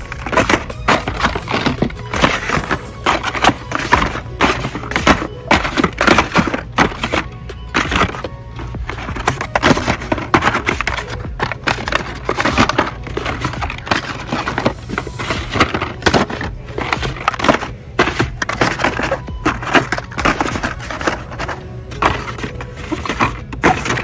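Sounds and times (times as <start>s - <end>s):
plastic blister packs clattering: 0.0s - 24.0s.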